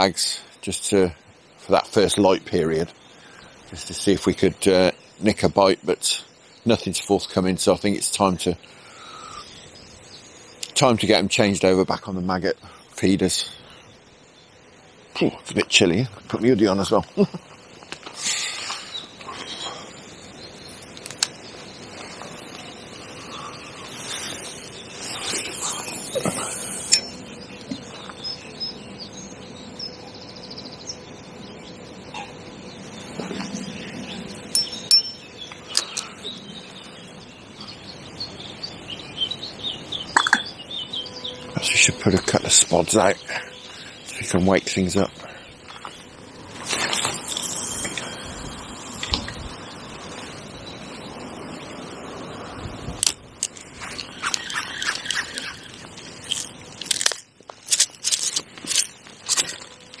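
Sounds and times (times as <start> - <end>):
small birds chirping: 0.0 - 60.0
hands crunching and scraping bait: 53.0 - 60.0.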